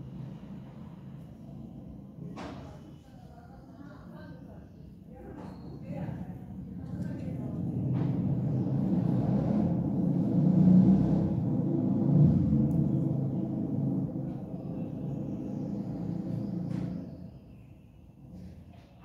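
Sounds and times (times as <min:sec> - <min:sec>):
low rumbling hum: 0:06.2 - 0:18.4.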